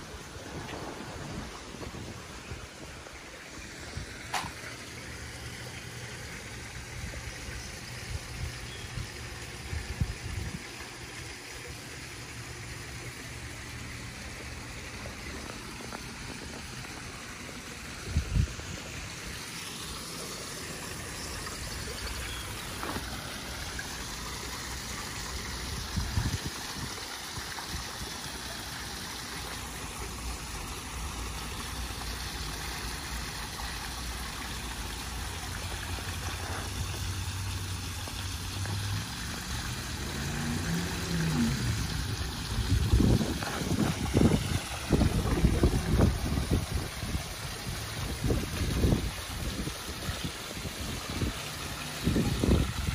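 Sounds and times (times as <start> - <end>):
water splashing into pool: 0.0 - 52.9
low rumbles: 0.1 - 4.2, 38.2 - 46.7.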